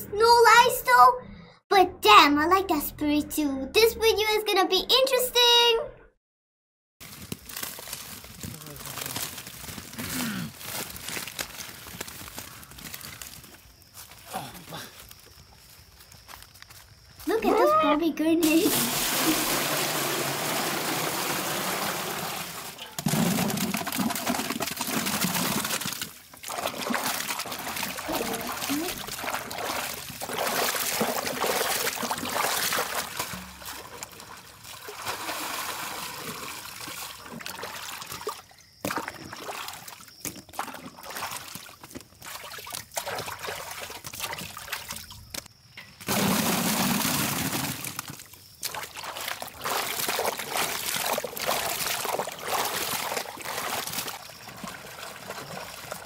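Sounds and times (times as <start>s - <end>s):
water sloshing: 18.4s - 45.4s, 46.1s - 56.0s
water pouring into metal pot: 18.5s - 38.2s, 46.1s - 48.2s.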